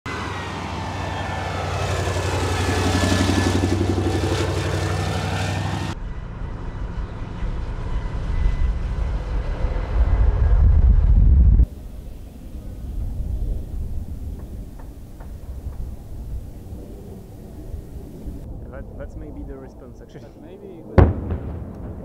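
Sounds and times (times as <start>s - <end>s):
muffled vehicle rumble: 5.9s - 19.0s.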